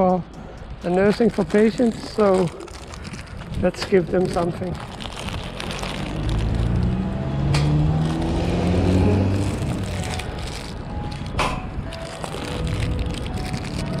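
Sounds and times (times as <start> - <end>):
vehicle engine passing: 5.6 - 10.7.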